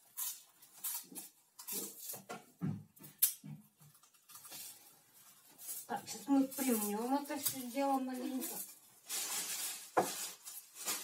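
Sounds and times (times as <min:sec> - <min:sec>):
dry corn sticks crunching: 0:00.0 - 0:02.3, 0:03.2 - 0:11.0
cling film crinkling: 0:03.2 - 0:11.0.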